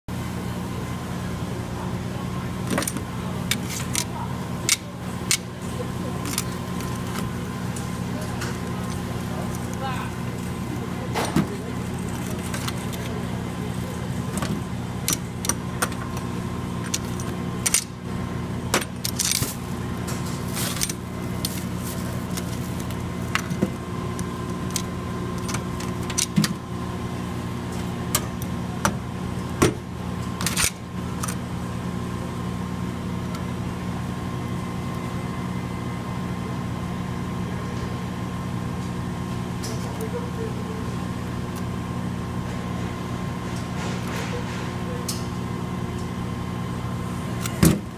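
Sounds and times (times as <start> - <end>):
steady tonal hum: 0.1 - 47.9.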